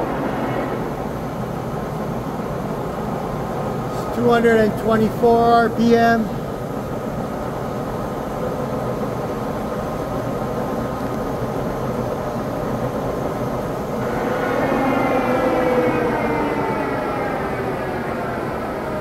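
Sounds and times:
lathe motor drone: 0:00.0 - 0:02.8, 0:13.9 - 0:19.0
gear whine: 0:00.0 - 0:04.3, 0:13.3 - 0:19.0.

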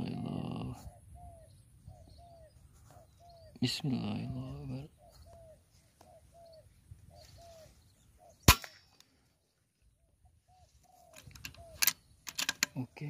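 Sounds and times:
doves cooing: 0:00.0 - 0:09.2, 0:09.9 - 0:13.0
air rifle shot: 0:08.4 - 0:09.0.

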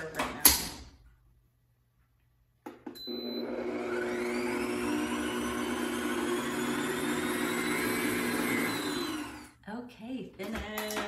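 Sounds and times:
mixer motor whirring: 0:03.1 - 0:09.6.

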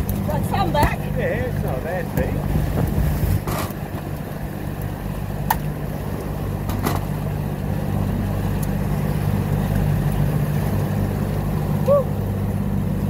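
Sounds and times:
wind noise: 0:00.0 - 0:04.0
boat engine running: 0:00.0 - 0:13.0
water noise: 0:00.0 - 0:13.0.

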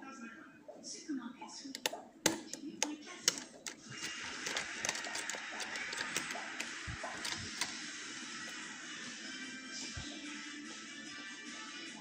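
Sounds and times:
lock pick metal clicks and scrapes: 0:01.8 - 0:07.8.

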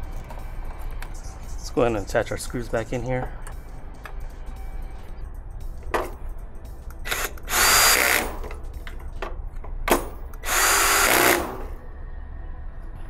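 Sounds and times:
cordless drill running: 0:07.1 - 0:08.3, 0:10.4 - 0:11.6.

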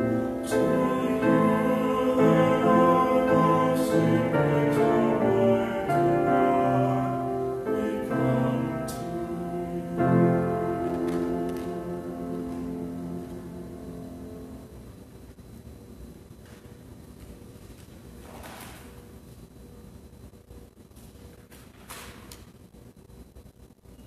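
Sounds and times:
slow chant singing: 0:00.0 - 0:14.7
piano accompaniment: 0:00.0 - 0:15.0.

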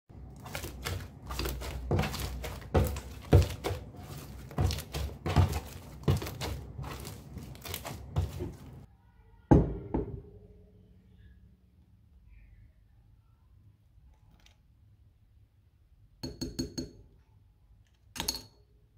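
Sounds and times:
slime squelching and crackling: 0:00.1 - 0:08.9.

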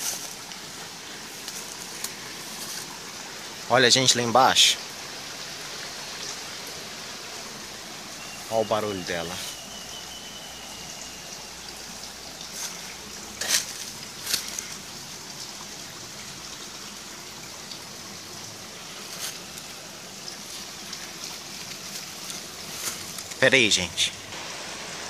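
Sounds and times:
water rushing from waterfall: 0:00.0 - 0:25.0
dry grass crackling: 0:12.5 - 0:14.8, 0:20.4 - 0:23.4.

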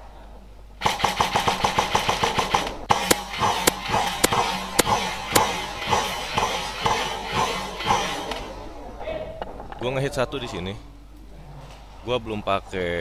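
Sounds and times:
airsoft rifle rapid fire: 0:00.8 - 0:08.5
sharp airsoft cracks: 0:00.8 - 0:08.6.

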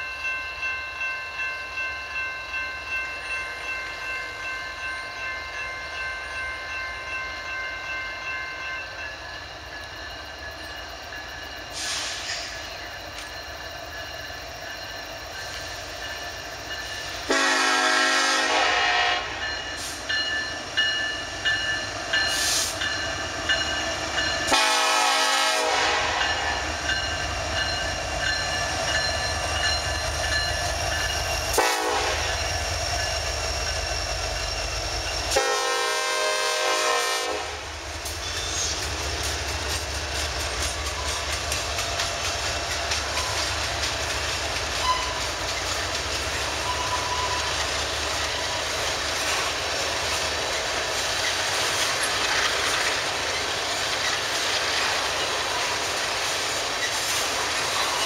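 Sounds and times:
train wheels rumbling on rail: 0:00.0 - 0:58.0
locomotive air horn: 0:17.3 - 0:19.4, 0:24.5 - 0:26.5, 0:31.6 - 0:32.3, 0:35.3 - 0:37.6.

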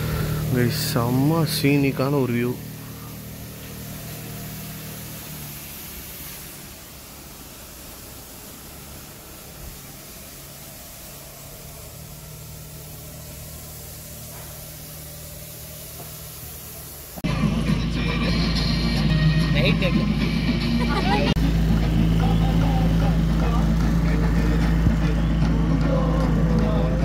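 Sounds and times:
hiss of water and wind: 0:00.0 - 0:17.3
boat engine humming: 0:00.0 - 0:27.0.

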